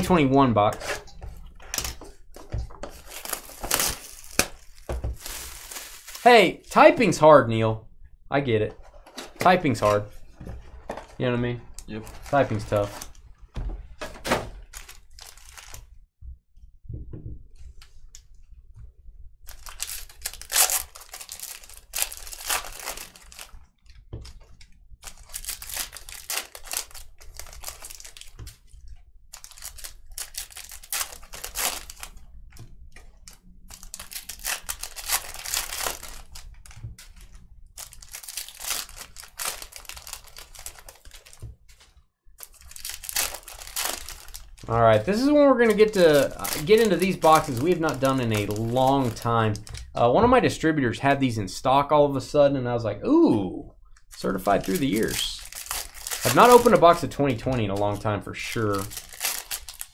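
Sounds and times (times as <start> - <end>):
foil wrappers tearing and crinkling: 2.9 - 6.5, 11.8 - 13.2, 14.6 - 15.8, 19.5 - 23.6, 25.0 - 28.7, 29.3 - 32.2, 33.2 - 49.9, 54.1 - 59.9.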